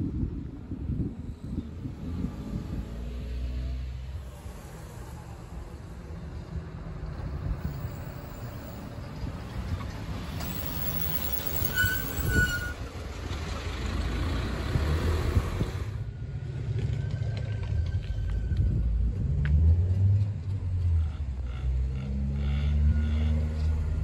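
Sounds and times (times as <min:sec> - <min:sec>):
high wheel squeal: 0:10.3 - 0:12.9.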